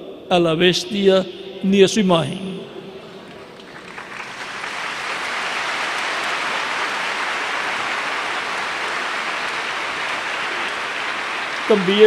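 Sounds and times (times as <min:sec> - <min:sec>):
congregation applauding: 0:03.2 - 0:12.0.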